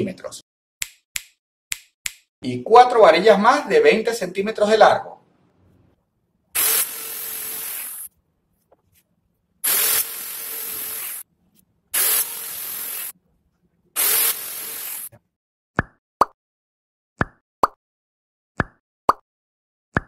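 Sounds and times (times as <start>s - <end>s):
jigsaw cutting wood: 9.7s - 11.2s, 12.0s - 13.1s, 14.0s - 15.1s.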